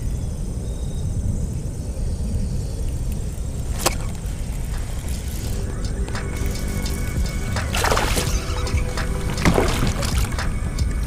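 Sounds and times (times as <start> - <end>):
wind rumble on microphone: 0.0 - 11.0
fishing rod cast swish: 3.7 - 10.5.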